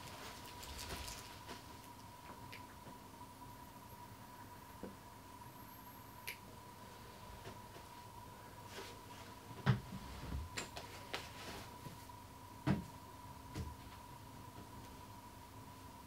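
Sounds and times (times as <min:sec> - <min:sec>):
faint high-pitched tone: 0:05.4 - 0:06.2.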